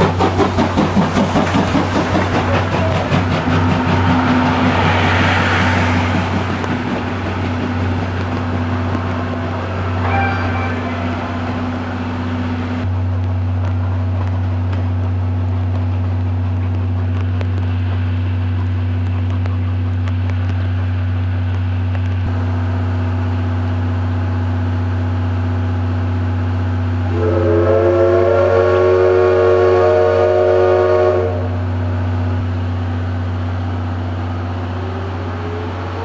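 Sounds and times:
loud long steam whistle: 9.8s - 11.7s, 27.0s - 31.7s.

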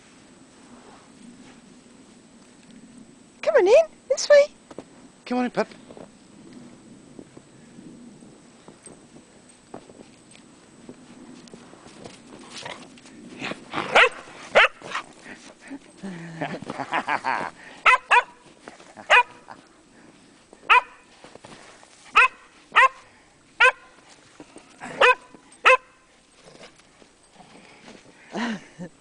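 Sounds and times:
dog barking: 13.9s - 15.0s, 17.8s - 18.4s, 19.1s - 19.4s, 20.7s - 21.0s, 22.1s - 23.0s, 23.6s - 23.9s, 25.0s - 26.0s.

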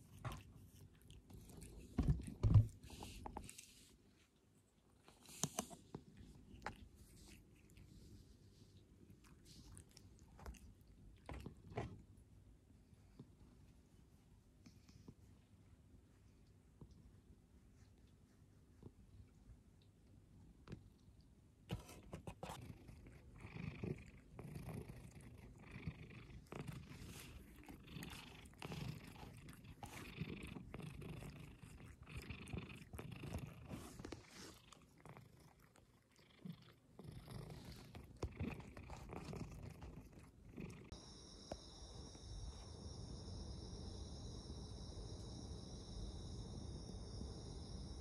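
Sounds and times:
cat purring: 0.0s - 4.2s, 21.7s - 48.0s
insects chirring: 40.9s - 48.0s.

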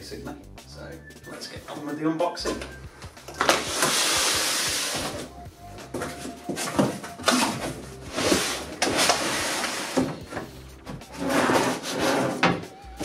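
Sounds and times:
cardboard flaps rustling: 3.4s - 11.1s.

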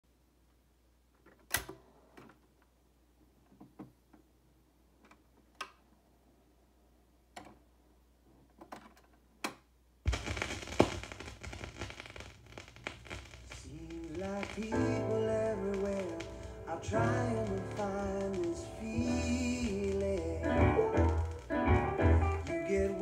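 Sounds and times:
vinyl crackle and hiss: 10.0s - 23.0s
stylus dropping onto record: 10.1s - 23.0s.

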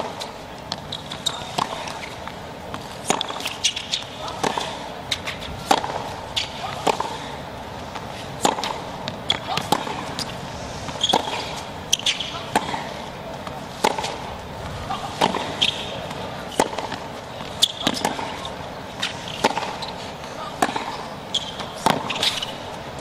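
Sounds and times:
tennis racket hitting ball: 0.0s - 22.6s
ball bouncing on hard court: 0.1s - 7.1s, 8.4s - 12.9s, 16.5s - 18.5s, 19.4s - 19.9s, 20.6s - 22.5s.

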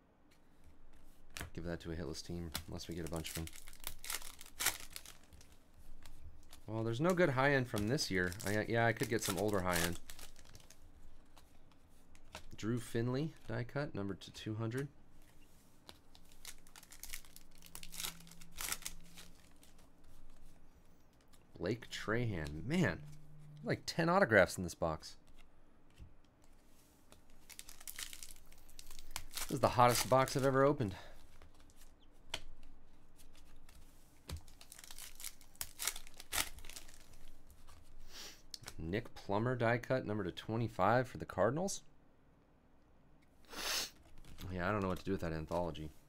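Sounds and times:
trading cards being handled: 2.4s - 13.7s, 14.7s - 23.8s, 25.2s - 38.8s
wrapper crinkling and tearing: 2.8s - 10.8s, 16.0s - 20.4s, 27.3s - 30.7s, 33.5s - 37.7s.

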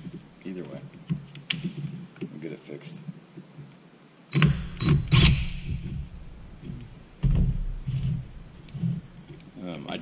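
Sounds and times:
heavy knock: 5.5s - 9.0s.

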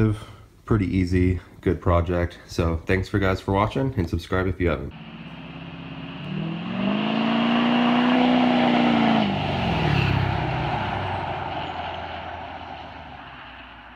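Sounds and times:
pickup truck accelerating past: 5.0s - 13.9s.

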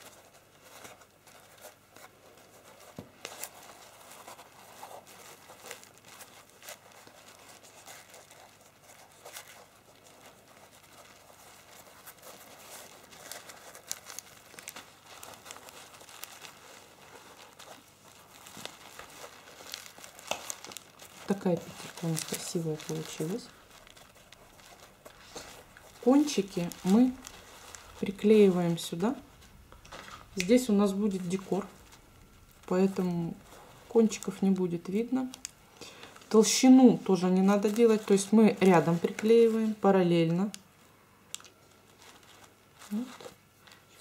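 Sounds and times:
rope rustling and clicking: 0.0s - 32.7s.

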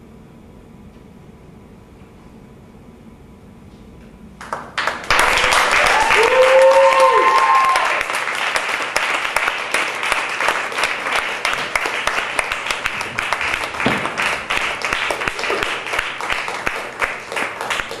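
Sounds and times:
audience applauding: 4.4s - 18.0s.

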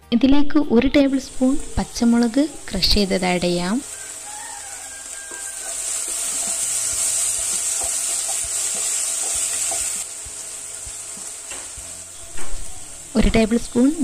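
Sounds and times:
onions sizzling in a pot: 0.9s - 14.0s
spatula stirring: 3.9s - 10.1s.

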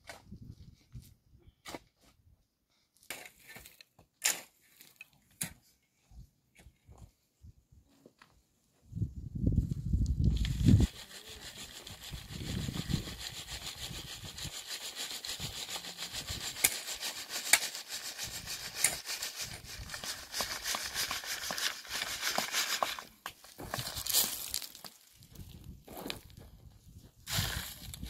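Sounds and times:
hand tool rasping strokes: 10.7s - 23.1s.

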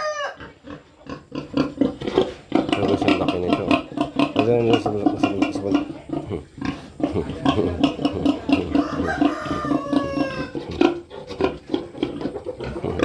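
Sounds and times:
rooster crowing: 0.0s - 0.4s, 8.8s - 10.6s
pigs grunting: 0.1s - 13.0s.

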